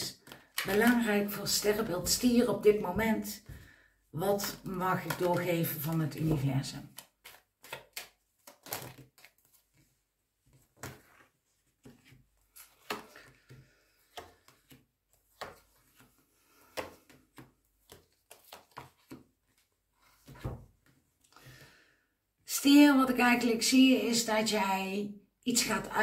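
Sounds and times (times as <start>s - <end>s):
cards shuffling on table: 4.4s - 9.8s, 10.5s - 20.6s.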